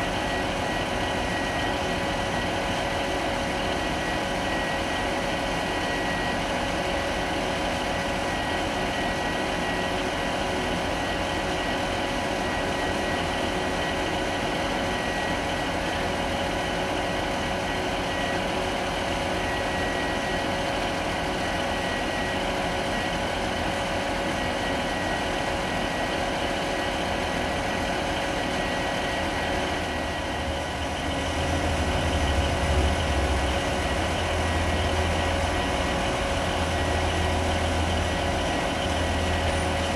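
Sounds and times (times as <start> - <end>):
standing train idling hum: 0.0 - 39.9
diesel locomotive engine rumble: 17.0 - 39.9.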